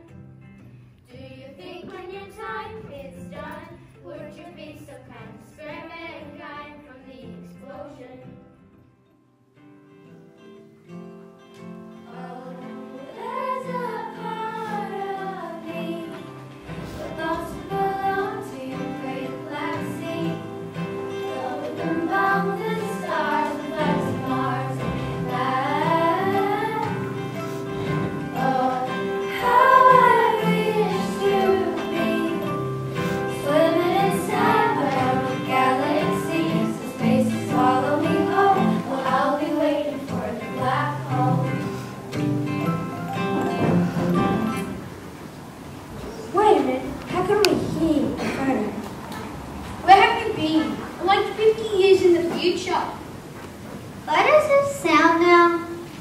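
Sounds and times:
girls singing: 1.1 - 8.4, 12.0 - 42.1
instrumental accompaniment: 9.8 - 46.1.

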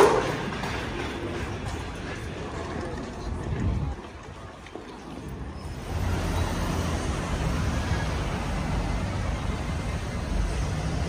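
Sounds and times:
cars driving past: 5.6 - 11.0.

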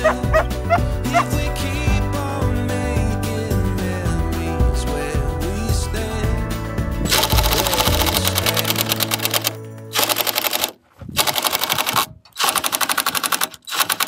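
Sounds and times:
impact driver driving screw into wood: 7.1 - 14.0.

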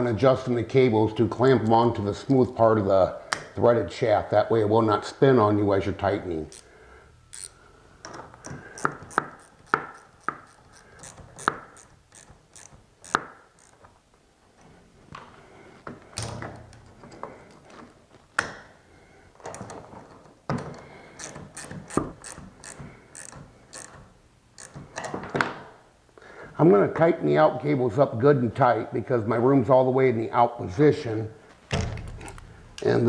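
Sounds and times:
wrench clicking on metal: 6.5 - 6.7, 7.3 - 7.6, 8.4 - 13.8, 21.2 - 25.1.

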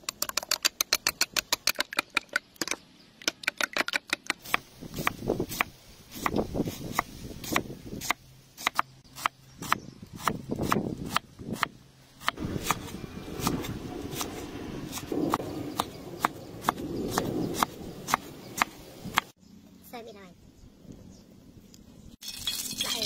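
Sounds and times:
knife chopping on wooden board: 3.5 - 14.3.

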